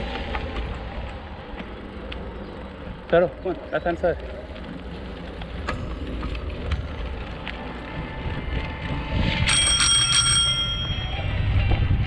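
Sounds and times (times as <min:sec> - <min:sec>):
low rumble of wind: 0:00.0 - 0:12.0
bicycle bell ringing: 0:09.4 - 0:11.5.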